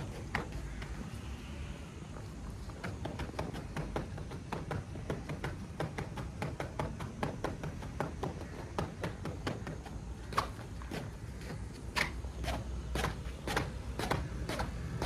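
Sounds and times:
battle ropes slapping mat: 0:02.7 - 0:11.1.

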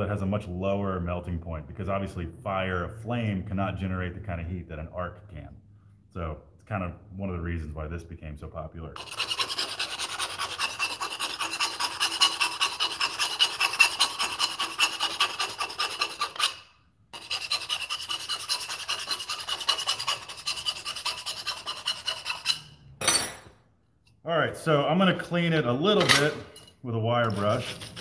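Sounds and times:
file rasping on metal pipe: 0:09.0 - 0:22.8, 0:27.3 - 0:28.0.

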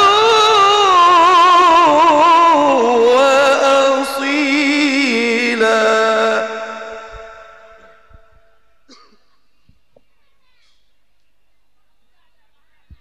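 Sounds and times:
man reciting melodically: 0:00.0 - 0:08.6.

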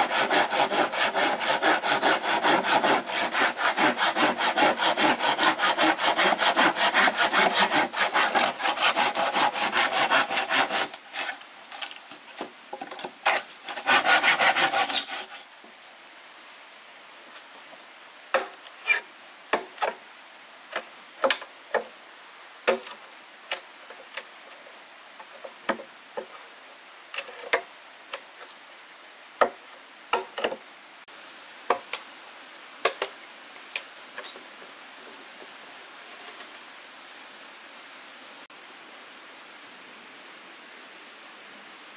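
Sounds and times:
hand saw cutting wood: 0:00.0 - 0:11.4, 0:13.2 - 0:15.5.

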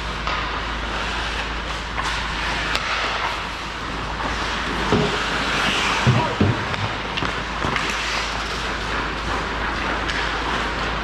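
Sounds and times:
hockey sticks clacking: 0:00.2 - 0:03.5, 0:04.2 - 0:11.0
skates hissing on ice: 0:00.8 - 0:03.4.

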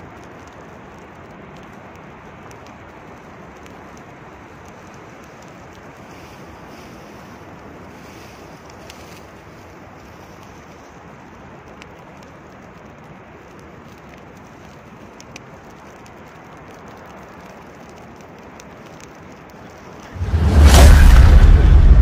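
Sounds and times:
fire burning: 0:00.0 - 0:22.0
fire crackling: 0:00.0 - 0:22.0
loud boom: 0:20.1 - 0:22.0.

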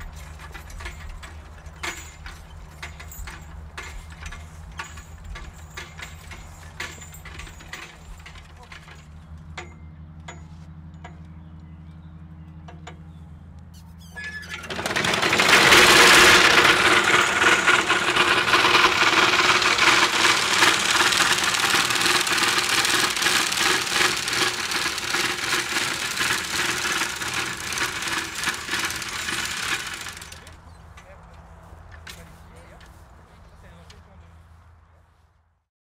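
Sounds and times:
squealing whine: 0:13.7 - 0:14.8.

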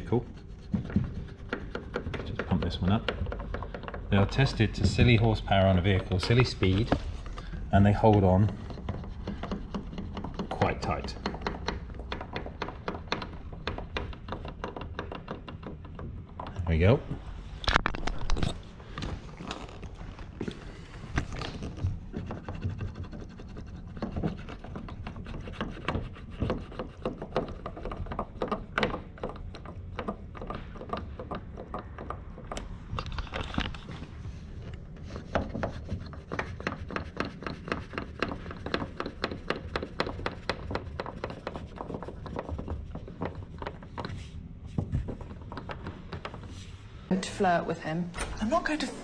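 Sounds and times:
hand pump clicks and knocks: 0:00.0 - 0:16.6, 0:23.9 - 0:33.9, 0:34.7 - 0:44.2, 0:44.8 - 0:46.5
rubbing against mounts: 0:00.0 - 0:17.3, 0:19.0 - 0:47.2.

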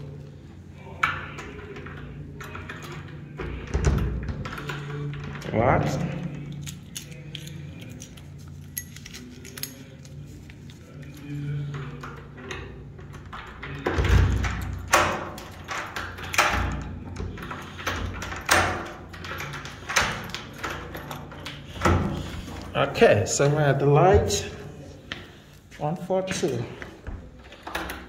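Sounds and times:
key jiggling in door lock: 0:06.3 - 0:10.2, 0:11.9 - 0:22.6, 0:27.4 - 0:28.0.

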